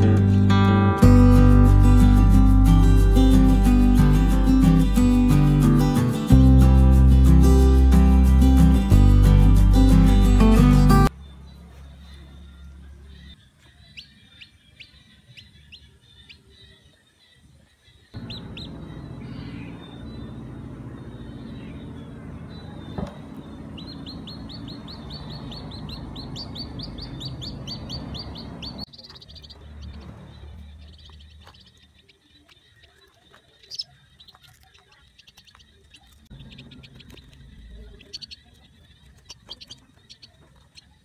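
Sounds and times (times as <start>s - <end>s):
bird chick peeping: 11.0s - 41.0s.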